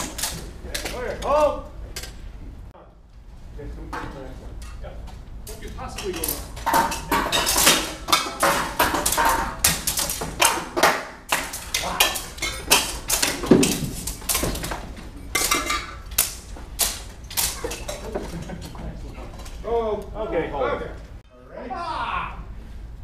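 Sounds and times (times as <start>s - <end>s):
swords clashing on shields and armour: 0.0s - 1.6s, 5.8s - 19.6s.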